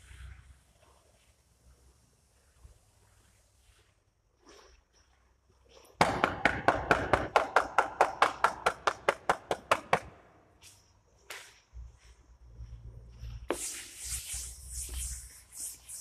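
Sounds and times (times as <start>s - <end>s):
sharp claps: 6.0s - 10.2s.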